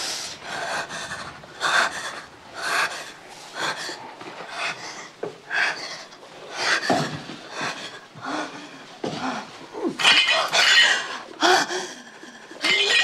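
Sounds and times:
woman gasping and moaning: 6.7s - 13.0s.

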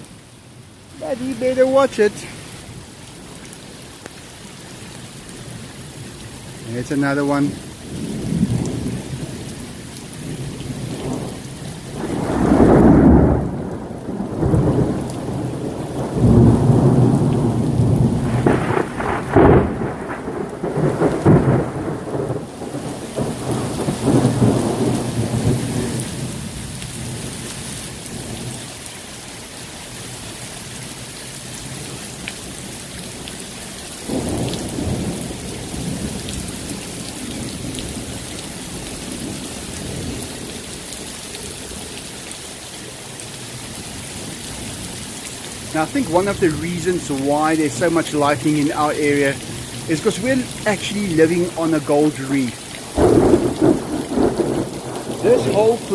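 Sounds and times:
steady rain hissing: 0.0s - 55.9s
thunder rumbling: 6.8s - 26.6s, 34.1s - 40.7s, 45.6s - 55.9s.

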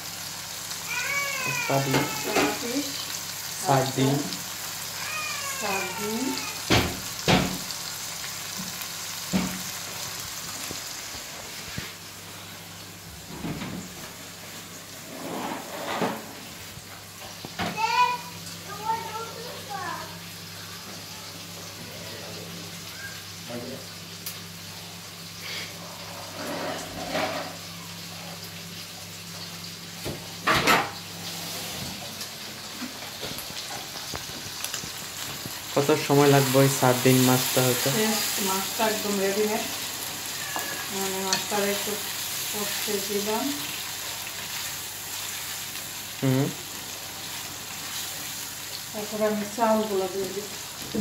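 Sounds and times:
food sizzling in a frying pan: 0.0s - 51.0s
wooden spatula scraping a pan: 14.9s - 16.4s, 26.1s - 27.6s, 39.2s - 42.0s
cooking utensils clattering: 30.4s - 31.0s.

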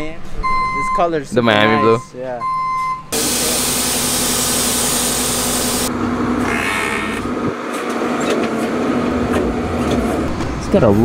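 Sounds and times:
truck engine hum: 2.9s - 11.0s
loud hiss: 3.2s - 5.9s.

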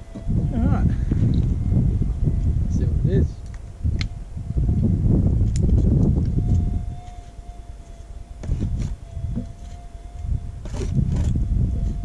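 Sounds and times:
loud low rumbling: 0.0s - 12.0s
metal detector high tone: 6.3s - 12.0s.

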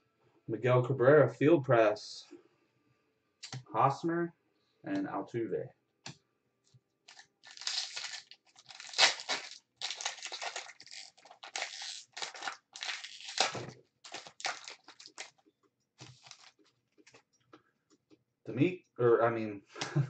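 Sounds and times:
foil wrapper tearing and crinkling: 7.1s - 15.4s, 16.0s - 16.6s.

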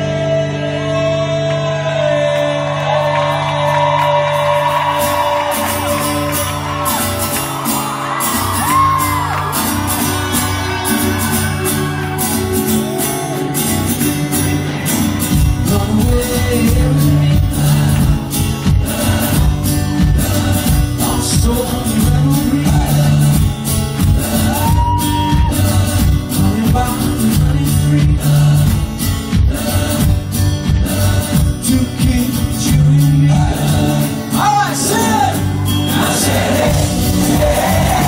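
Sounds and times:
person singing: 0.0s - 6.4s, 8.6s - 38.0s
live band playing: 3.7s - 38.0s
drums: 4.5s - 38.0s.

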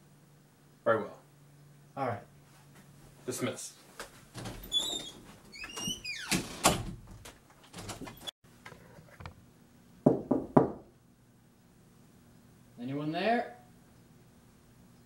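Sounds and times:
knocks on a door: 10.0s - 10.9s.

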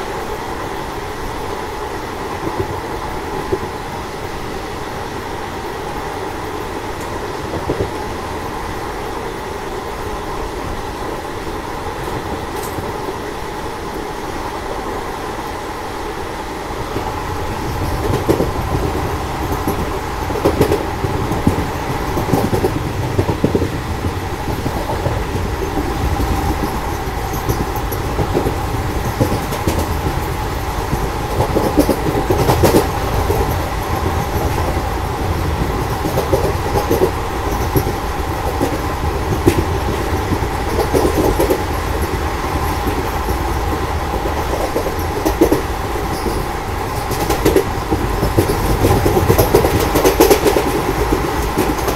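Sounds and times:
train wheels rumbling on rail: 0.0s - 51.9s
wheels clicking over rail joints: 16.9s - 51.9s.

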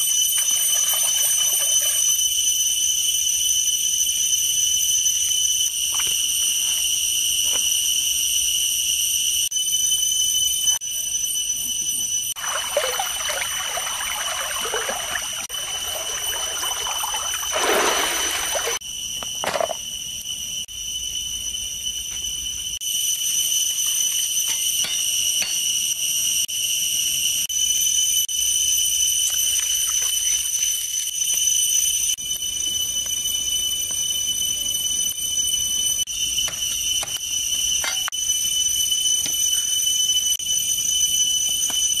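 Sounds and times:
high-pitched insect chorus: 0.0s - 42.0s
water splashing and trickling: 0.4s - 2.1s, 12.4s - 18.8s.

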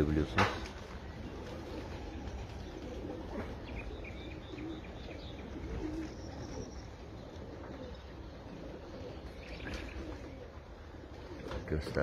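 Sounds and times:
pigeons cooing: 0.0s - 12.0s
bird chirps: 2.6s - 8.4s.

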